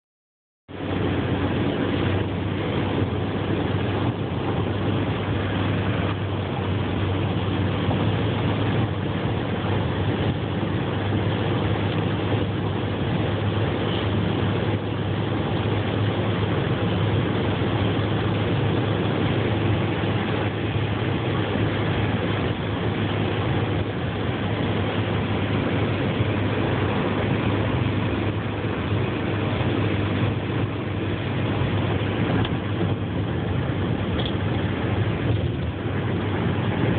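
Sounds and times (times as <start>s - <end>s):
car cabin road drone: 0.7s - 36.9s.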